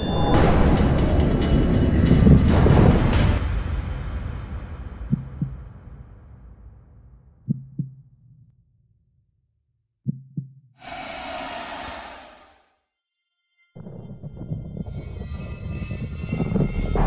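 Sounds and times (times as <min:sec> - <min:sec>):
heartbeat: 0:05.0 - 0:05.8, 0:07.4 - 0:08.1, 0:10.1 - 0:10.6
deep rumble: 0:10.8 - 0:12.6
steady rushing noise: 0:10.8 - 0:12.7.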